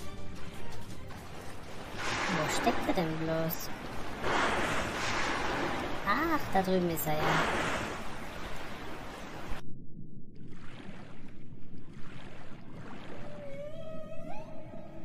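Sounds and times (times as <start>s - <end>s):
waves: 0.3s - 9.6s, 10.5s - 15.0s
low underwater rumbling: 1.2s - 15.0s
whale call rising tone: 12.8s - 15.0s.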